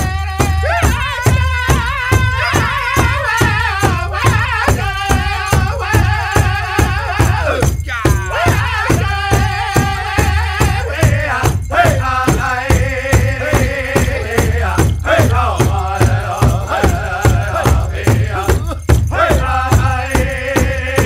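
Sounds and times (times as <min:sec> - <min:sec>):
group chant-like singing: 0:00.0 - 0:21.0
steady drumbeat: 0:00.0 - 0:21.0.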